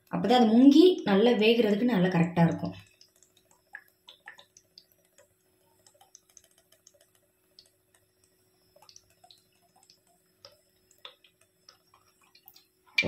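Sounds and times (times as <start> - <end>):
faint steady hum: 0.0 - 13.0
faint ticks and clicks: 2.6 - 13.0.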